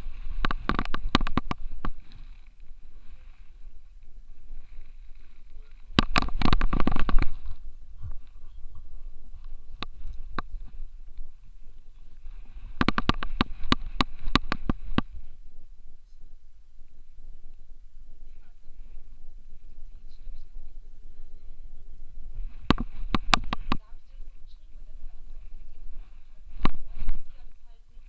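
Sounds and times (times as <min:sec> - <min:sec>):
camera knocking and rubbing: 0:00.0 - 0:02.2, 0:05.9 - 0:08.2, 0:09.3 - 0:10.8, 0:12.6 - 0:15.2, 0:22.3 - 0:24.1, 0:24.8 - 0:27.6.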